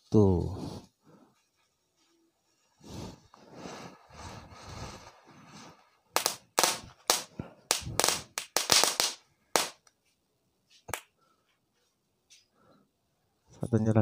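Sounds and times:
firework spitting sparks: 0:04.3 - 0:09.8
firework cracks: 0:06.2 - 0:09.9.

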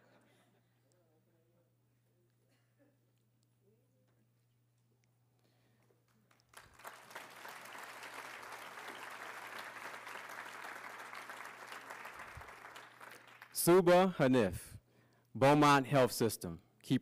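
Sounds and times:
audience applauding: 0:06.3 - 0:13.7.

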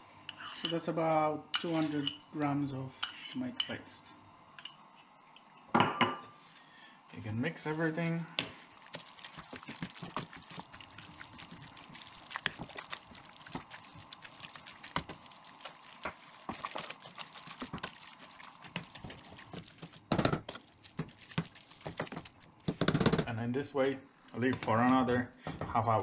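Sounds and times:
food squelching in a pot: 0:08.0 - 0:22.9.

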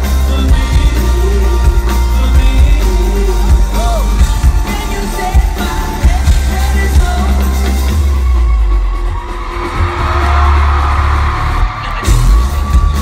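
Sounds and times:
person singing: 0:00.0 - 0:08.4
live band playing loud: 0:00.0 - 0:13.0.

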